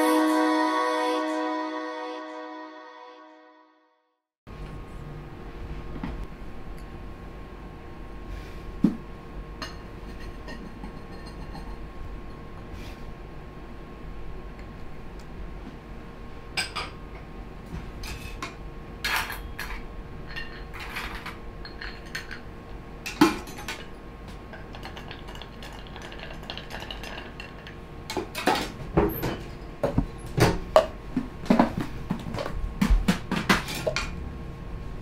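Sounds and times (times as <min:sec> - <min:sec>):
bar tools and glassware clinking: 0:19.1 - 0:22.5, 0:23.2 - 0:27.8
bar spoon stirring ice: 0:24.6 - 0:27.7.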